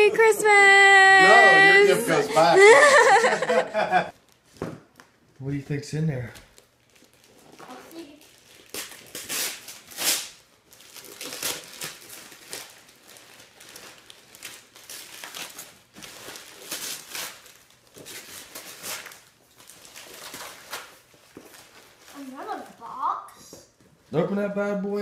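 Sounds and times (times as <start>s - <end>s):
wrapping paper tearing and crumpling: 4.1s - 4.6s, 6.5s - 22.9s.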